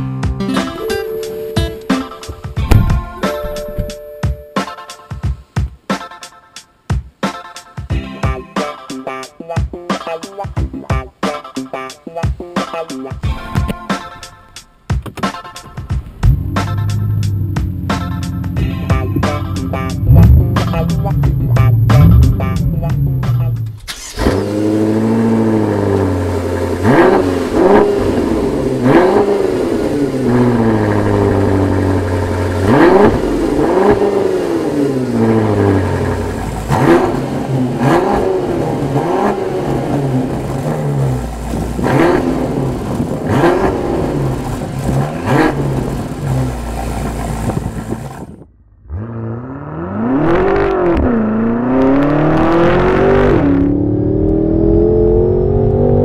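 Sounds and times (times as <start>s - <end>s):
car engine revving: 16.2s - 56.0s
car accelerating at full throttle: 19.2s - 56.0s.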